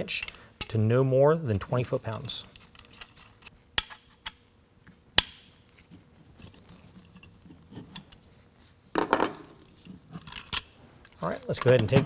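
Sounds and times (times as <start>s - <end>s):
wrench clattering on wooden bench: 11.5s - 12.0s.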